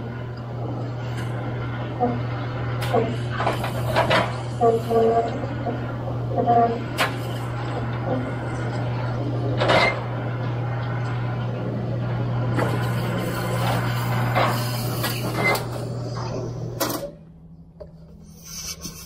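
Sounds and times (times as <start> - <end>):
gutter machine humming: 0.0 - 19.0
metal clanks and scrapes: 2.9 - 8.2, 9.6 - 10.0.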